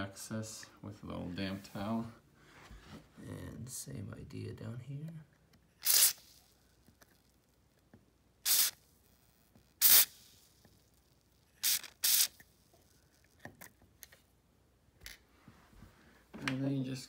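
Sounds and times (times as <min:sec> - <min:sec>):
aerosol can spraying: 0:05.8 - 0:06.4, 0:08.4 - 0:08.8, 0:09.8 - 0:10.4, 0:11.6 - 0:12.5.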